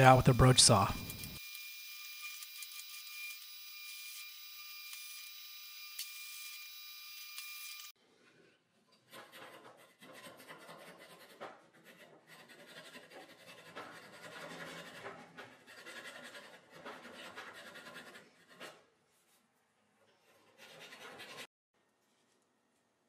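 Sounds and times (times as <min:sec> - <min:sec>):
saw rasping in wood: 0:09.0 - 0:18.9, 0:20.3 - 0:21.5.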